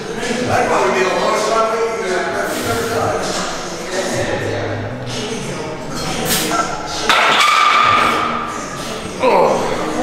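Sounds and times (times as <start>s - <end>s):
background music: 0.0s - 10.0s
indistinct voices: 0.0s - 10.0s.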